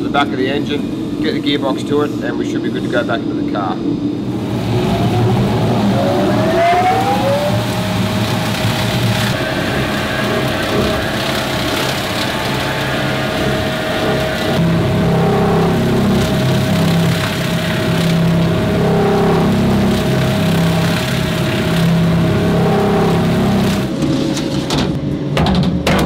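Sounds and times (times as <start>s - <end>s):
surface grinder motor whining: 4.2s - 24.0s.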